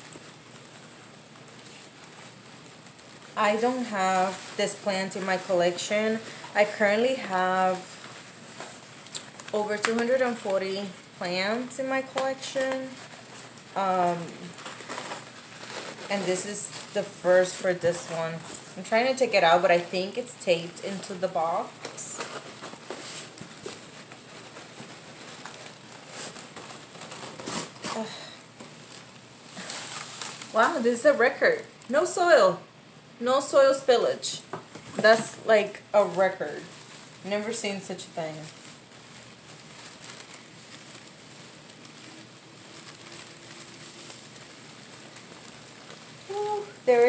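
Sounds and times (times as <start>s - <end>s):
paper wrapping rustling: 0.0s - 32.4s, 34.4s - 47.0s
cardboard box rustling: 14.4s - 18.6s, 21.5s - 30.6s.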